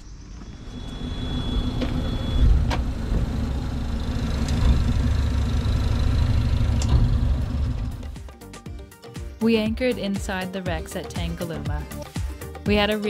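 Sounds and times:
boat engine idling: 1.6s - 8.3s.

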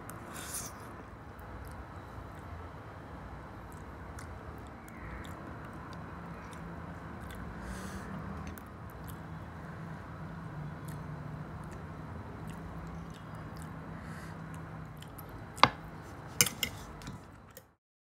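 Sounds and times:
chewing pasta: 3.6s - 9.5s, 10.7s - 17.7s
metal fork clinking on plate: 16.4s - 16.8s.

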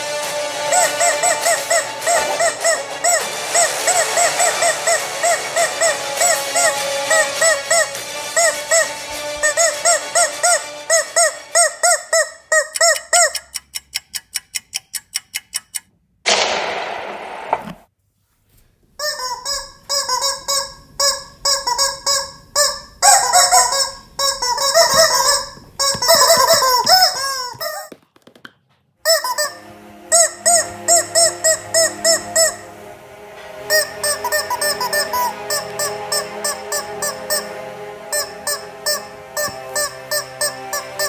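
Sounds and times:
rubber chicken toys squeaking: 0.7s - 15.8s, 19.0s - 28.0s, 29.0s - 32.6s, 38.5s - 41.0s
quick ticks: 12.7s - 15.9s
short blast of noise: 16.3s - 17.9s.

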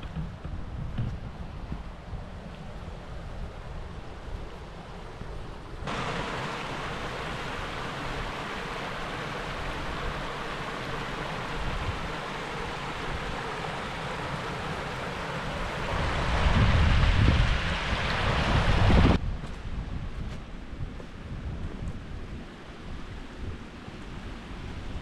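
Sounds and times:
wind rumble on microphone: 0.0s - 25.0s
running water rushing: 2.4s - 19.2s.

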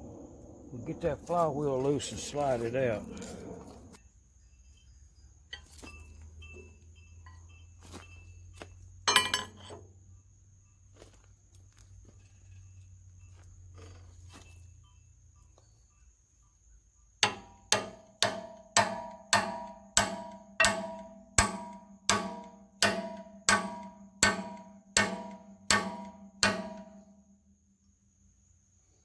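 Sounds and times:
low hum: 0.0s - 4.0s
hammer striking metal: 9.1s - 9.8s, 17.2s - 27.1s.

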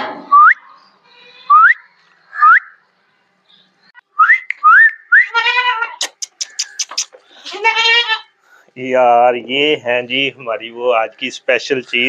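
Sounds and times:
man whistling upward: 0.3s - 0.6s, 1.5s - 1.8s, 2.4s - 2.7s, 4.2s - 5.3s
goat kid bleating: 1.0s - 1.7s, 5.3s - 8.4s.

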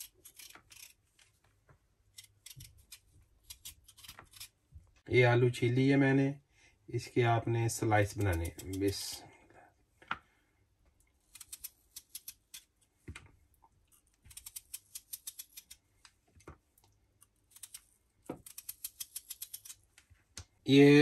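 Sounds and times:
knife paring potato skin: 0.0s - 1.0s, 2.1s - 4.6s, 11.2s - 12.8s, 14.0s - 15.8s, 17.2s - 20.0s.

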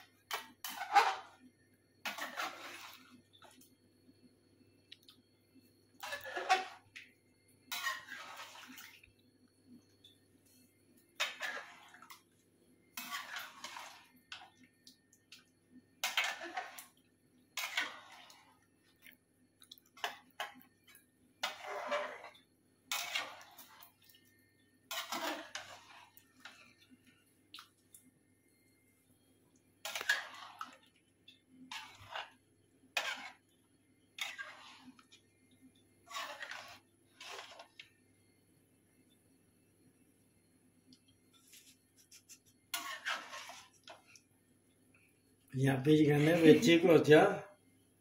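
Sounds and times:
spoon stirring curry in pot: 0.2s - 3.6s, 7.6s - 8.8s, 9.9s - 28.8s, 29.6s - 38.0s, 41.2s - 44.3s.

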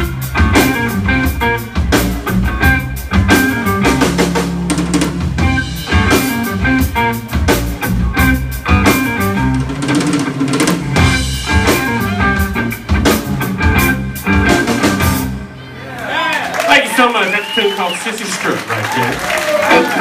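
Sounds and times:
drum kit beat: 0.0s - 15.4s
electric guitar: 0.0s - 15.8s
electric bass: 0.0s - 16.0s.

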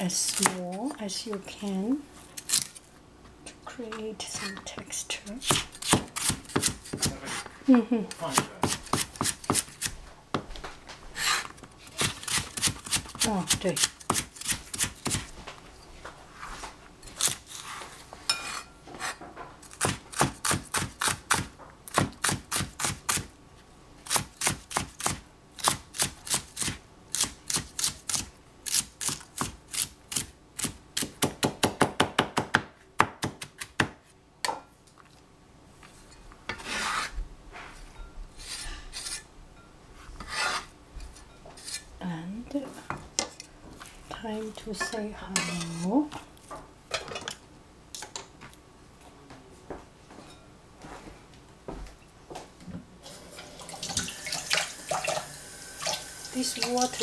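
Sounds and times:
cleaver chopping on cutting board: 8.3s - 9.7s.

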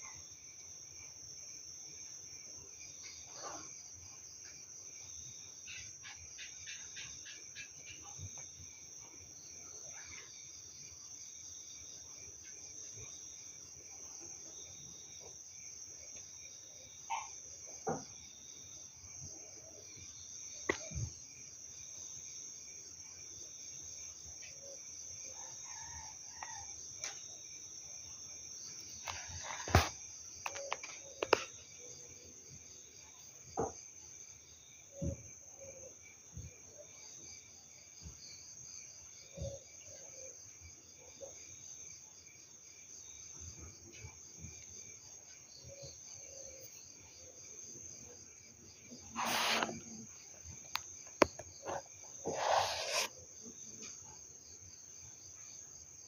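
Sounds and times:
crickets and insects trilling: 16.4s - 40.8s, 41.6s - 56.0s.

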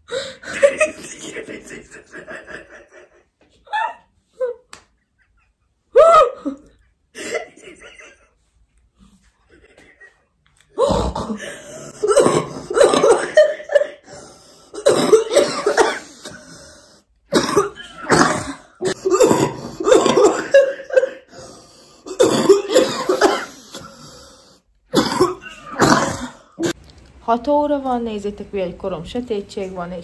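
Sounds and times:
women laughing: 0.4s - 8.4s, 12.7s - 14.0s
women coughing: 10.8s - 14.1s, 14.8s - 16.6s, 17.3s - 21.4s, 22.0s - 24.0s, 24.9s - 26.8s.

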